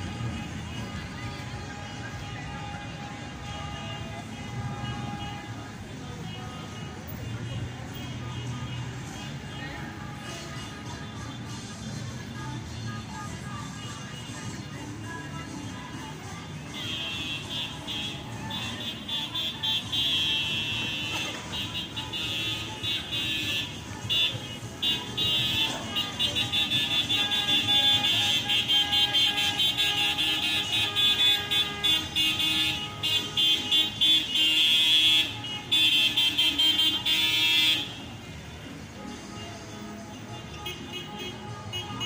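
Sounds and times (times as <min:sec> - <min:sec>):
car horns honking: 0:00.0 - 0:12.4, 0:13.1 - 0:42.0
slow-moving traffic: 0:00.0 - 0:42.0.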